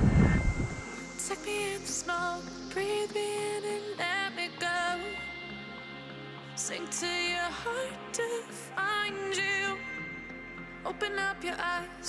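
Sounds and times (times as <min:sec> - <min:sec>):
wind buffeting microphone: 0:00.0 - 0:00.9
background music: 0:00.0 - 0:12.0.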